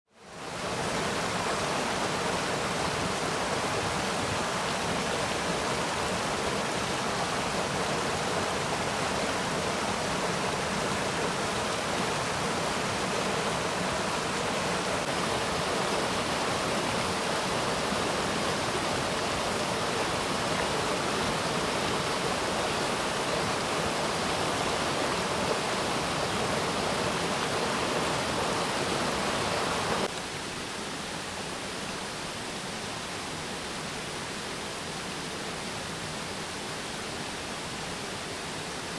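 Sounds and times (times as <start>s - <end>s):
stream rushing over cascade: 0.1s - 38.9s.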